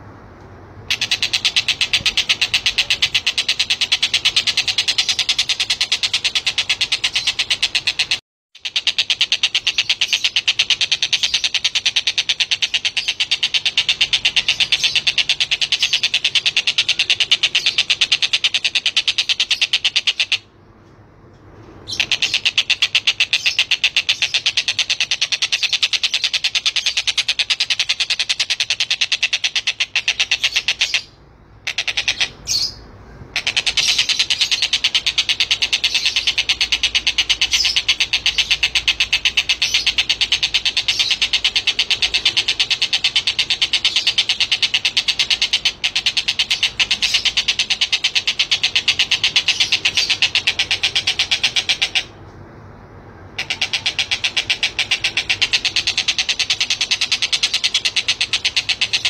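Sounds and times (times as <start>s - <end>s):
kingfisher rattling chatter: 0.9s - 20.4s, 33.4s - 52.1s, 53.3s - 59.0s.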